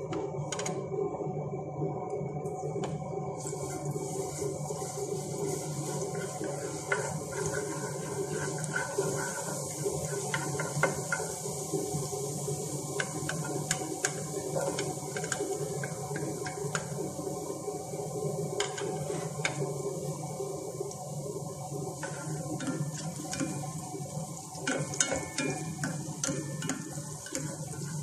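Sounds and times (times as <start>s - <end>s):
steady low hum: 0.0s - 28.0s
oil sizzling in a pan: 2.6s - 28.0s
wooden spatula scraping a pan: 3.4s - 11.5s, 13.0s - 16.6s, 18.6s - 19.6s, 22.0s - 23.7s, 24.6s - 28.0s.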